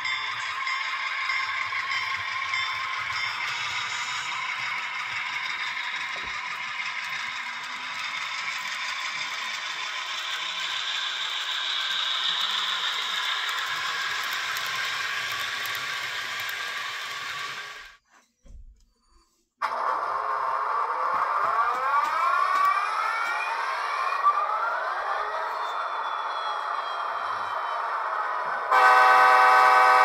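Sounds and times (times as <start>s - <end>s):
wheels rattling on rail: 0.0s - 18.0s
model train motor whirring: 0.3s - 18.0s, 19.6s - 30.0s.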